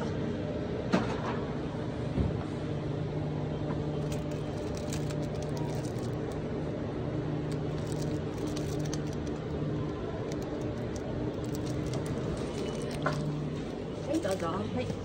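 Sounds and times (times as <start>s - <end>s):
vehicle humming: 3.3s - 15.0s.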